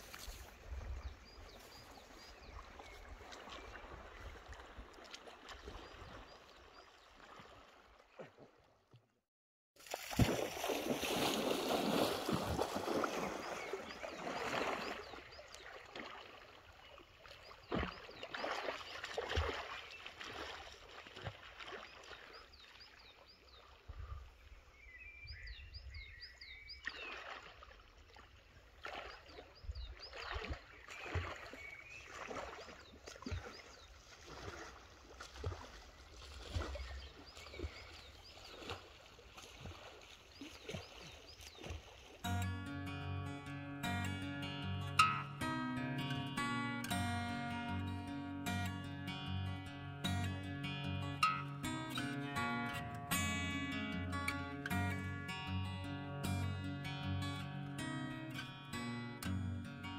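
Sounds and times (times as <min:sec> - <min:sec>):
water splashing from swimming: 0:01.5 - 0:08.8, 0:09.8 - 0:23.3, 0:26.8 - 0:42.2.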